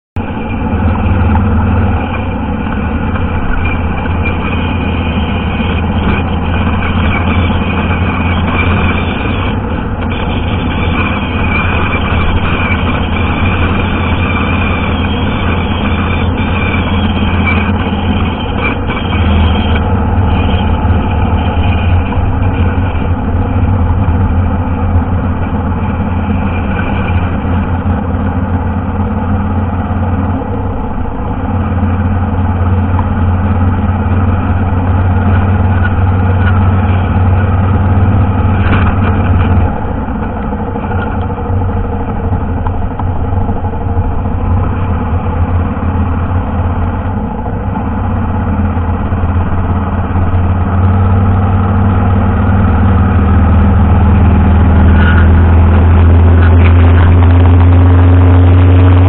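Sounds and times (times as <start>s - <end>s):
motorcycle engine running: 0.2s - 59.0s
wind and road noise: 0.2s - 59.0s.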